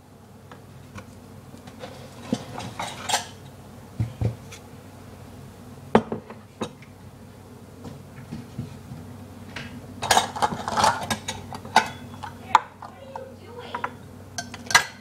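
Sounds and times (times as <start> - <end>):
pan and utensils clinking: 1.8 - 3.4, 10.0 - 12.6, 13.7 - 15.0.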